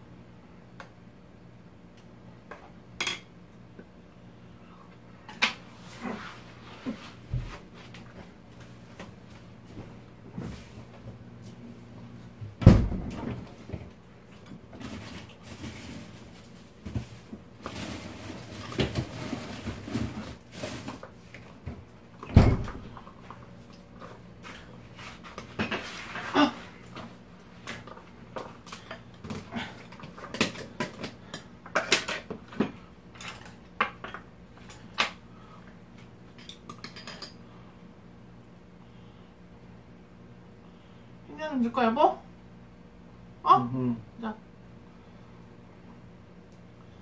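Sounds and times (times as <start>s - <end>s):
heavy thump: 12.6s - 13.4s.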